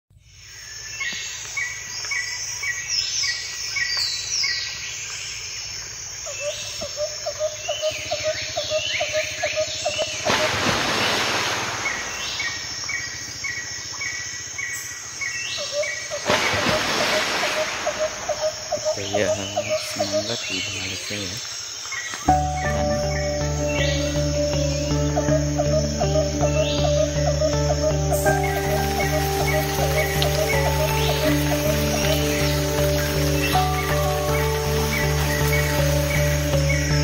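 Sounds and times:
high insect drone: 0.2s - 37.0s
fast repeated bird call: 15.6s - 21.2s.

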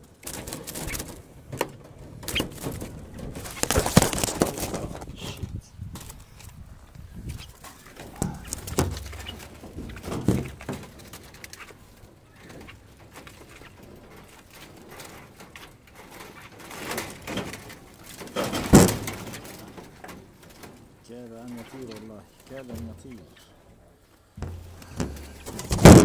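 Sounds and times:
doves cooing: 7.2s - 14.3s, 21.4s - 26.0s
wire-mesh trap knocking and rattling: 8.0s - 11.2s, 24.4s - 26.0s
loud clatter: 24.4s - 26.0s.

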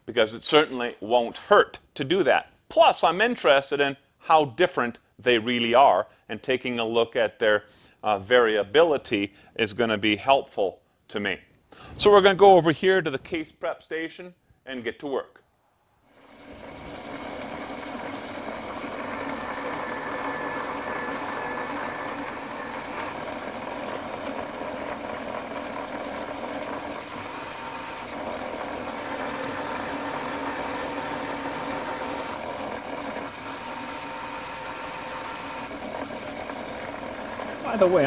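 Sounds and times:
electric motor running: 16.1s - 38.0s.

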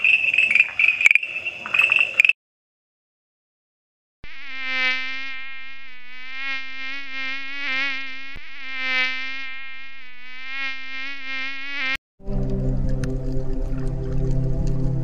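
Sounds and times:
insect wings buzzing: 4.3s - 12.0s.

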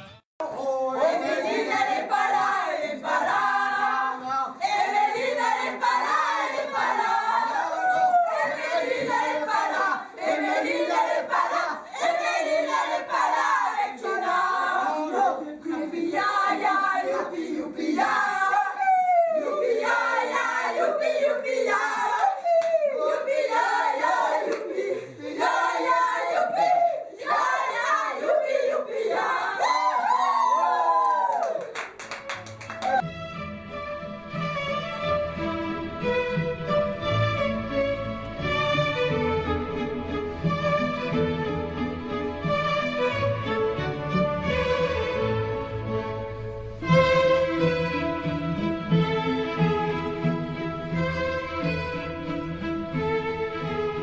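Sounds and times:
group singing in chorus: 0.5s - 29.7s
people shouting: 4.7s - 14.0s, 18.0s - 31.6s.

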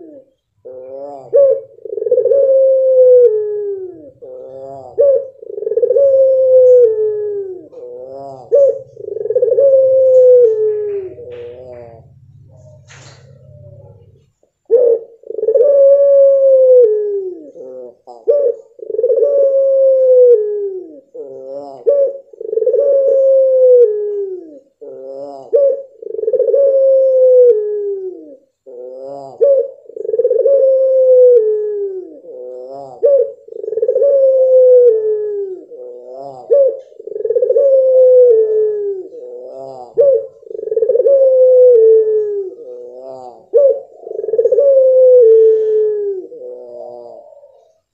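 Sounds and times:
dove cooing with trill: 0.0s - 47.9s.

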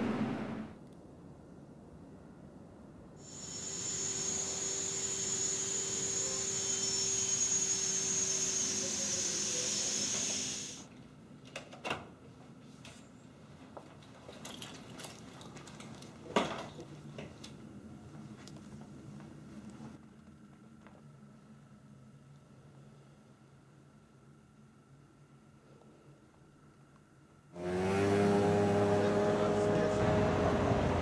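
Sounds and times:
machine hissing and humming: 3.2s - 10.9s.

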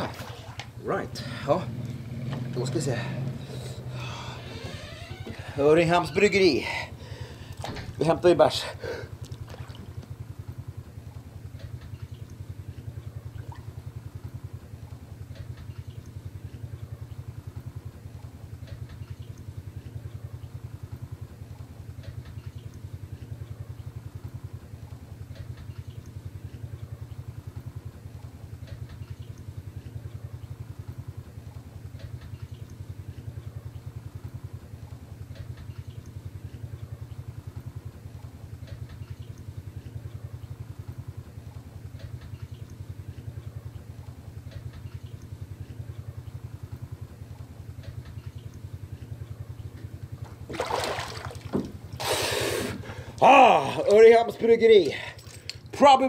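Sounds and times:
small engine idling: 0.0s - 50.5s, 51.2s - 56.0s.

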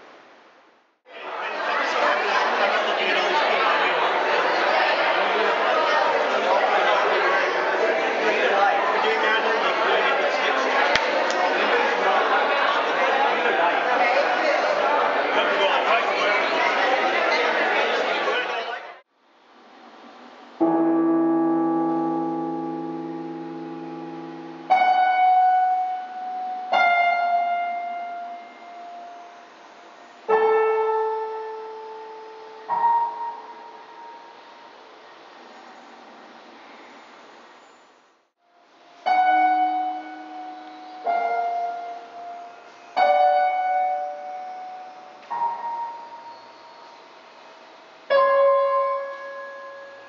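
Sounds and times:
slow piano music: 20.6s - 35.1s, 38.5s - 50.0s.

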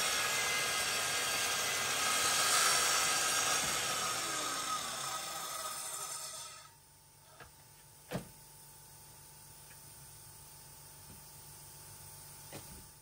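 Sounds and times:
dust extractor rushing: 0.0s - 6.5s
saw blade whine winding down: 0.0s - 6.8s.

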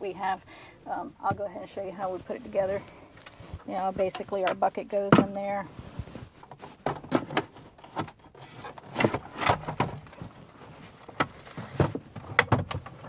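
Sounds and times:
hollow plastic clunks and scrapes: 3.2s - 13.0s.

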